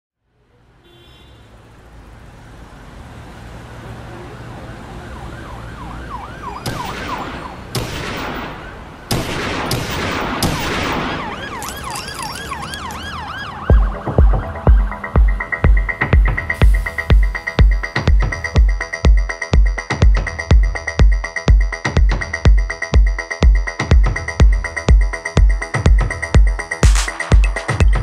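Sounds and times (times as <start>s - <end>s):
heavy kick drum: 13.7s - 28.0s.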